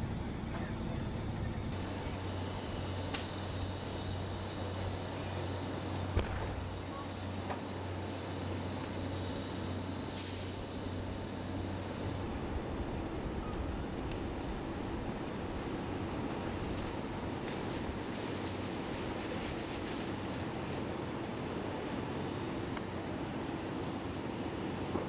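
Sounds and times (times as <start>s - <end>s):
diesel engine humming: 0.0s - 23.6s
large fire rushing: 5.9s - 7.6s.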